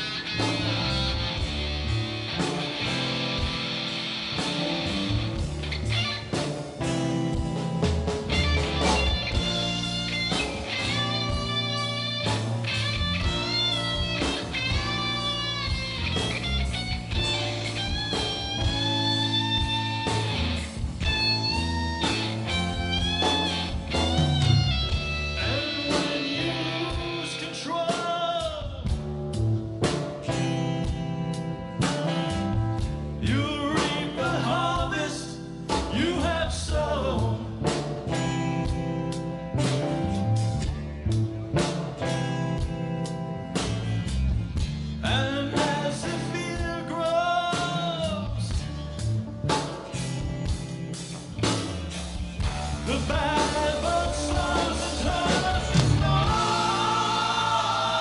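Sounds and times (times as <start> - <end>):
electric guitar bending notes: 0.0 - 27.6, 48.8 - 58.0
live rock band playing: 0.0 - 58.0.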